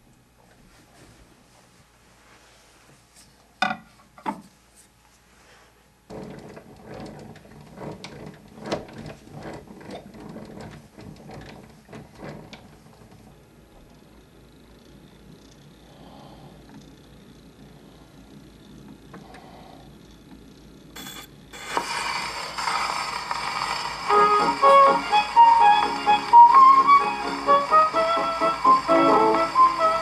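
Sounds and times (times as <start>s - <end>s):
phonograph crank ratcheting: 21.6s - 30.0s.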